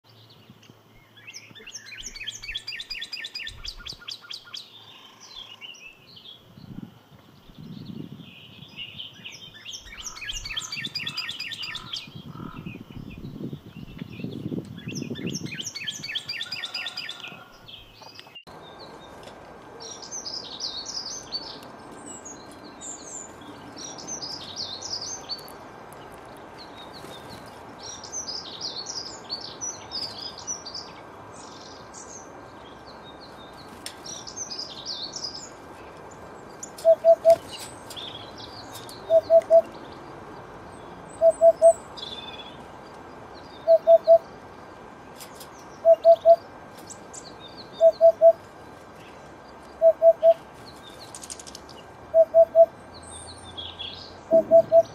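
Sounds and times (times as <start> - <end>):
short low beeps: 54.3 - 54.9.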